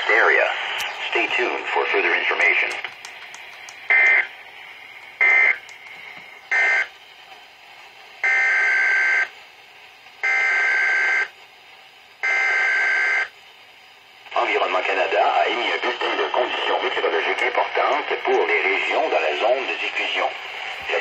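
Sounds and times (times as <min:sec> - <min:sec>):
digital data bursts from radio speaker: 0:03.9 - 0:04.3, 0:05.2 - 0:05.6, 0:06.5 - 0:06.9, 0:14.3 - 0:21.0.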